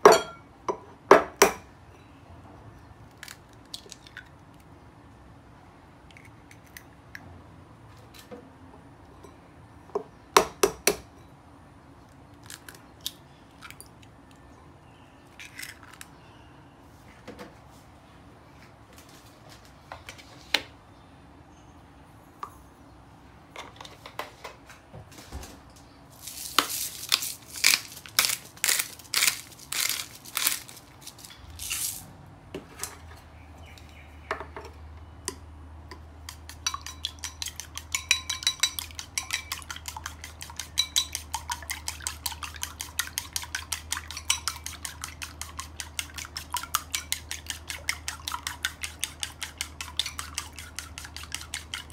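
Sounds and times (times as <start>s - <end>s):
chopsticks beating eggs in bowl: 26.2s - 31.4s, 36.2s - 51.9s.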